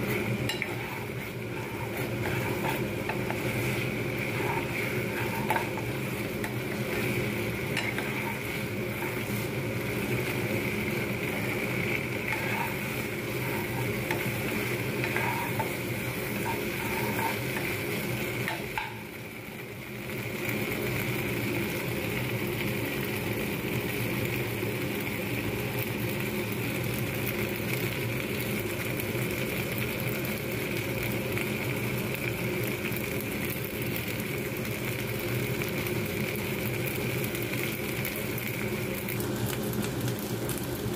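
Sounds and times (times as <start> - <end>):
steel spatula scraping pan: 0.0 - 19.0
pasta sizzling in pan: 0.0 - 40.9
steady background hum: 0.0 - 40.9.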